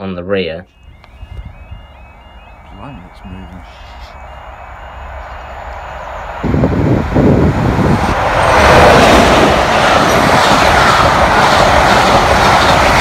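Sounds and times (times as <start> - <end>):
diesel locomotive passing: 0.7 - 13.0
passenger coaches rolling past: 0.7 - 13.0.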